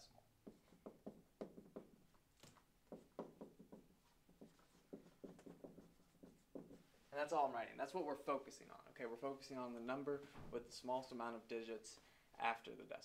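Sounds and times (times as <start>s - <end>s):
marker writing on whiteboard: 0.3s - 7.2s.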